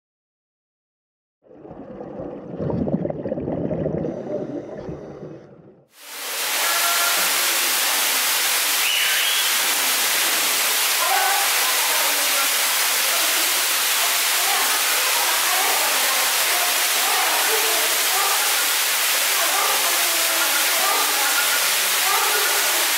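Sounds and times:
running water rushing: 0:01.5 - 0:22.9.

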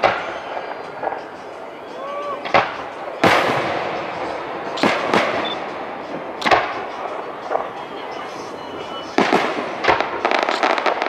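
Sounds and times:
firework shells bursting: 0:00.0 - 0:11.0.

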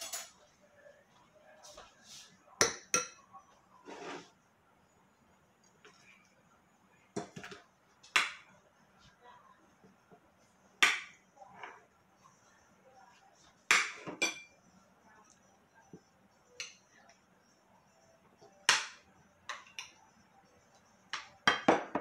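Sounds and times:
utensils clinking on ceramic plates: 0:00.0 - 0:00.4, 0:13.7 - 0:14.6, 0:21.1 - 0:22.0.

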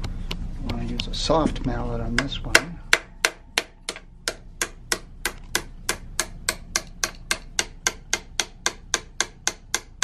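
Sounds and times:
mallet tapping metal drift: 0:02.1 - 0:10.0.

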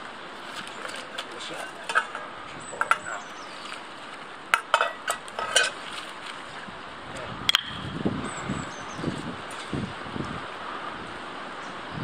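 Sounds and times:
stream water rushing: 0:00.0 - 0:08.2.

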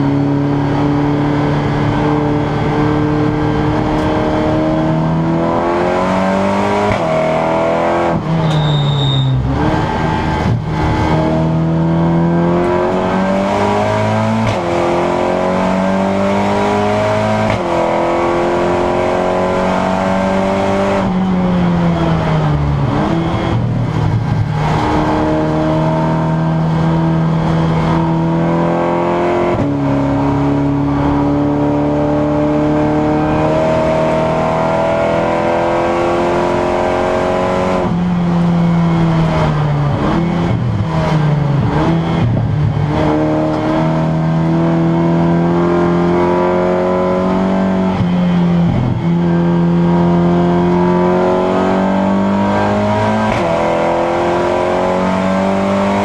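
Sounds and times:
tyre and road noise: 0:00.0 - 0:15.0
race car engine accelerating: 0:00.0 - 0:56.0.

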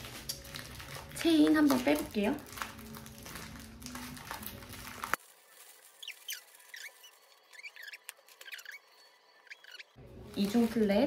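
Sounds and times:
rustling handling noise: 0:00.0 - 0:07.4, 0:10.1 - 0:11.0
high squeaks bending in pitch: 0:06.0 - 0:10.0.

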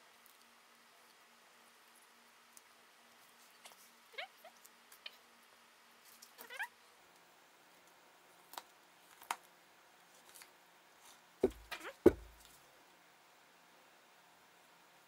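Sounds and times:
knife knocking on cutting board: 0:11.4 - 0:12.4.

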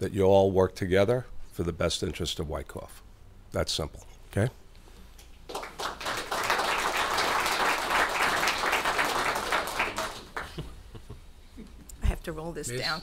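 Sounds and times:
audience applauding: 0:05.5 - 0:10.7.

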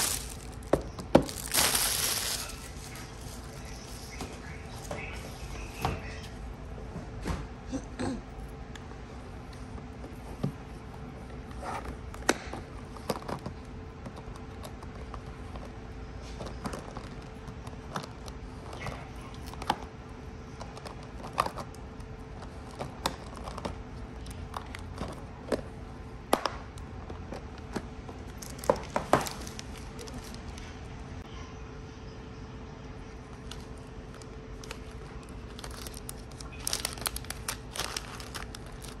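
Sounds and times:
plastic bags crinkling: 0:00.0 - 0:04.9, 0:28.2 - 0:30.6, 0:33.4 - 0:39.0
faint steady hum: 0:00.0 - 0:39.0.

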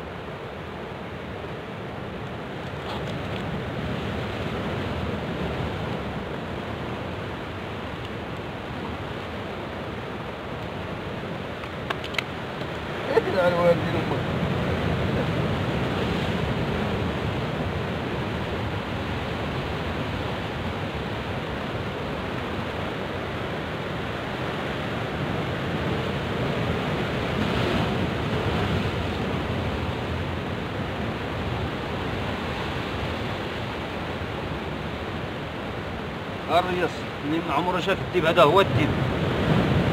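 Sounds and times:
surf breaking against rocks: 0:24.1 - 0:39.9.

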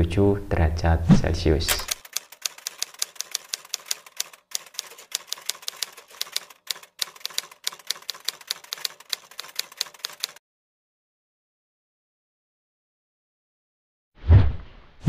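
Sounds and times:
keyboard typing clicks: 0:01.7 - 0:10.4.

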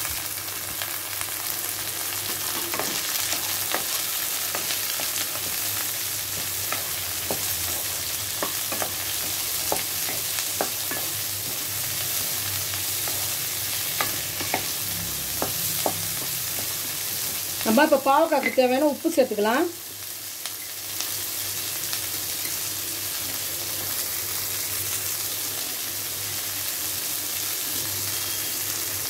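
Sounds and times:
vegetables sizzling in oil: 0:00.0 - 0:29.0
spatula clicking and scraping: 0:02.2 - 0:17.5.

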